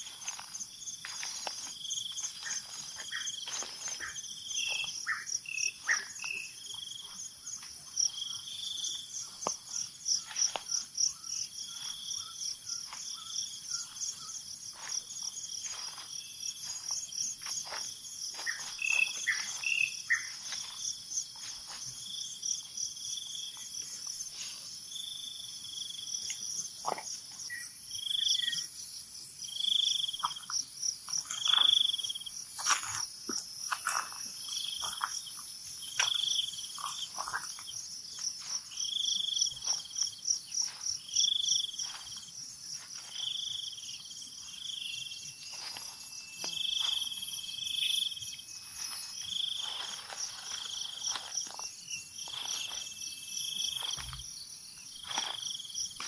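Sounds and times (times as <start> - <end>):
footsteps on dry leaves: 0.0 - 6.3, 11.6 - 22.3, 39.5 - 43.4, 45.4 - 47.6, 48.5 - 53.0, 53.7 - 54.3, 55.0 - 56.0
insects chirring in pulsing trill: 0.0 - 56.0.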